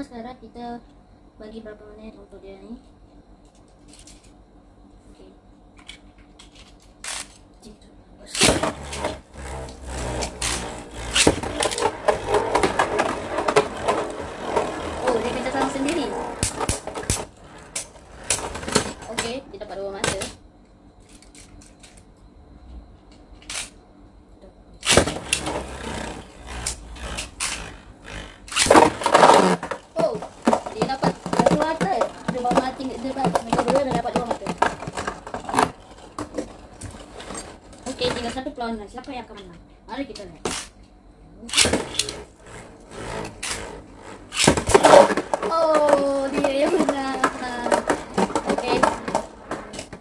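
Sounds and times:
spinning top clattering: 8.4 - 19.4, 24.8 - 38.3, 41.5 - 50.0
spinning top whirring rattle: 8.4 - 20.3, 24.8 - 38.4, 41.5 - 50.0.

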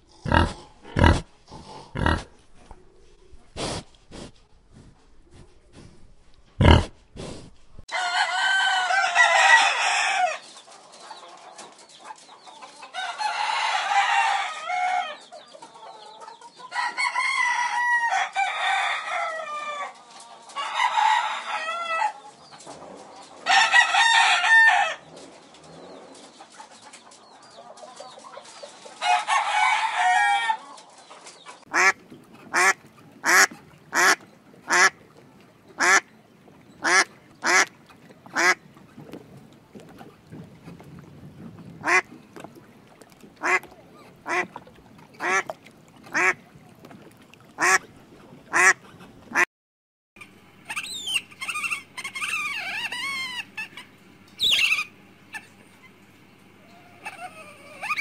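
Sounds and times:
ducks quacking: 0.0 - 1.2, 31.7 - 39.1, 41.8 - 49.5, 50.2 - 58.0
rooster crowing: 7.9 - 10.4, 13.0 - 15.2, 16.7 - 19.9, 20.6 - 22.2, 23.5 - 25.0, 29.0 - 30.6.

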